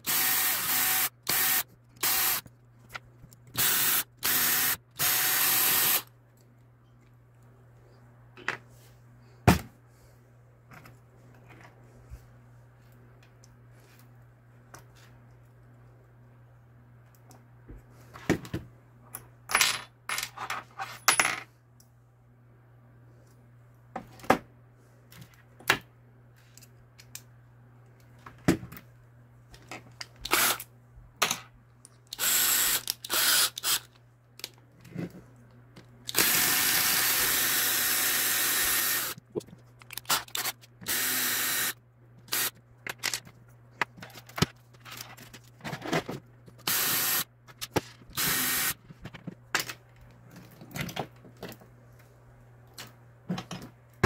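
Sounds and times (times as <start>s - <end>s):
cordless drill running: 0.0s - 2.4s, 3.5s - 6.1s, 30.3s - 30.6s, 32.1s - 33.8s, 36.1s - 39.2s, 40.4s - 42.5s, 46.7s - 47.2s, 48.2s - 48.8s.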